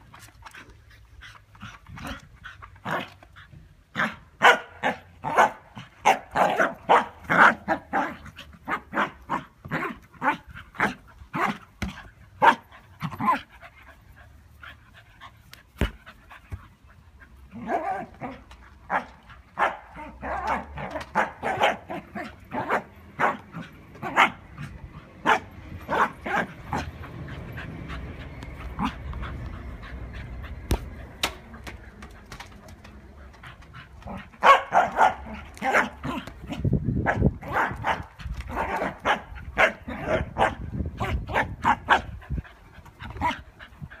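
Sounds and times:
dog barking: 0:04.4 - 0:07.5, 0:19.6 - 0:20.6, 0:21.2 - 0:21.9, 0:25.2 - 0:26.1, 0:34.4 - 0:35.9, 0:37.1 - 0:40.6.

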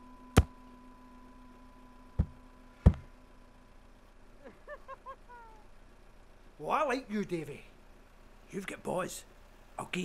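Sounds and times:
man laughing: 0:04.4 - 0:05.7.

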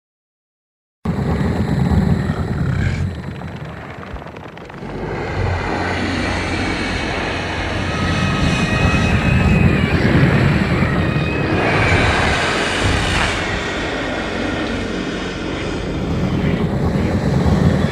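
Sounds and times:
monster growling roar: 0:01.1 - 0:06.7.

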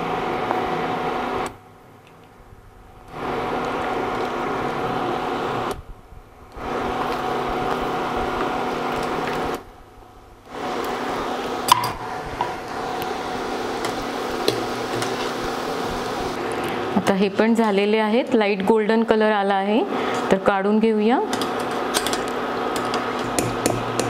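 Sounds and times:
induction cooktop hum: 0:00.0 - 0:24.0.

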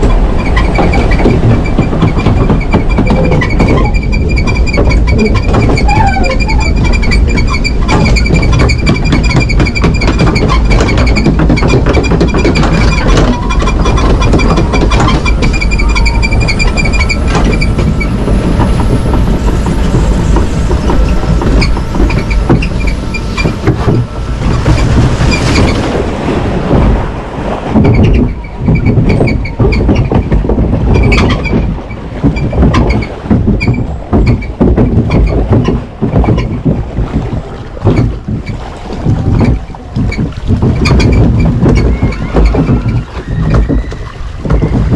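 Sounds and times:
log flume ride mechanical rumble: 0:00.0 - 0:44.9
gusty rush of noise: 0:12.1 - 0:44.9.

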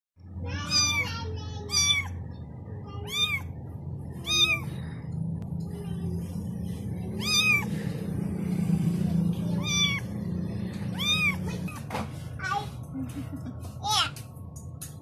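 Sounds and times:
steady low hum: 0:00.2 - 0:15.0
kitten meowing: 0:00.7 - 0:01.1, 0:01.7 - 0:02.1, 0:03.0 - 0:03.5, 0:04.2 - 0:04.8, 0:07.2 - 0:07.7, 0:09.5 - 0:10.1, 0:10.9 - 0:11.5.

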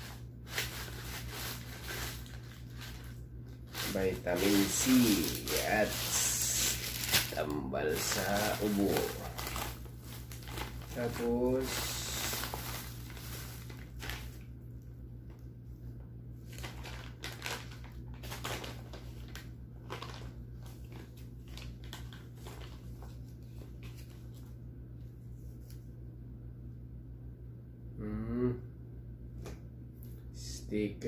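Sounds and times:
plastic bags crinkling: 0:00.0 - 0:14.5, 0:16.5 - 0:24.3.

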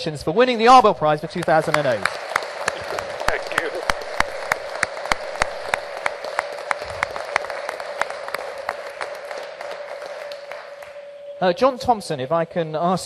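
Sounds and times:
audience applauding: 0:01.0 - 0:11.6.

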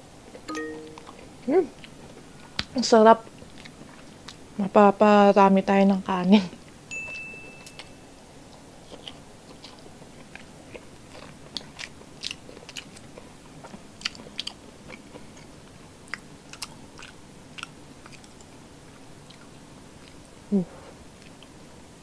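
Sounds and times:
person chewing food: 0:08.5 - 0:20.3.

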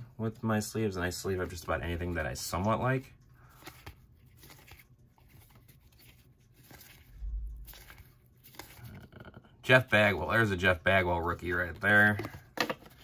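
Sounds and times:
cards flipping and sliding: 0:03.5 - 0:09.0.

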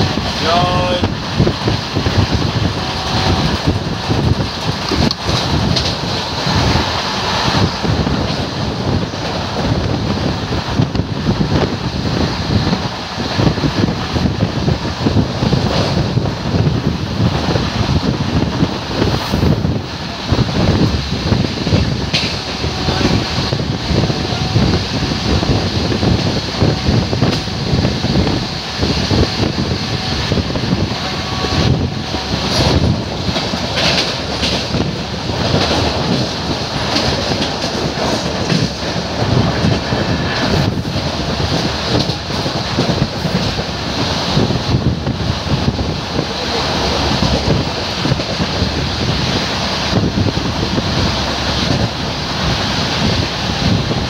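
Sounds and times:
rushing air: 0:00.0 - 0:54.0
train wheels rumbling on rails: 0:00.0 - 0:54.0
scattered knocks: 0:35.6 - 0:38.9.

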